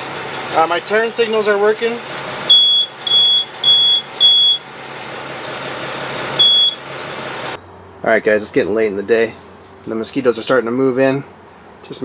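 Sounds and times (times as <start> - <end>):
truck engine hum: 0.0 - 12.0
high-pitched buzzer beeps: 2.5 - 4.6, 6.4 - 6.8.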